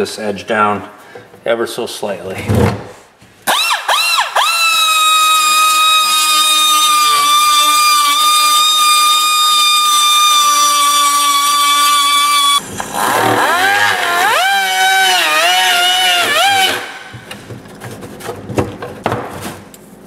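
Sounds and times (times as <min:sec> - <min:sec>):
die grinder whining: 0:03.5 - 0:17.2.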